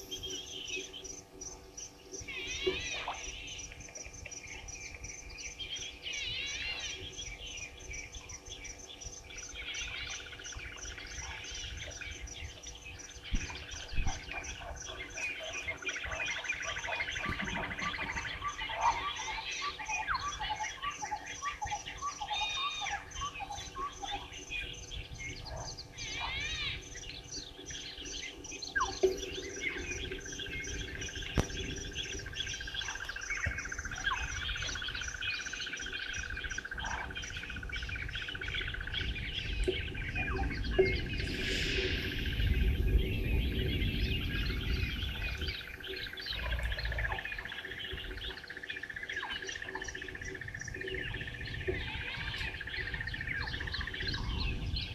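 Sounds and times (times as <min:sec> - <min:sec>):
wild birds chirping and trilling: 0:00.0 - 0:54.9
low rumble: 0:38.8 - 0:48.3.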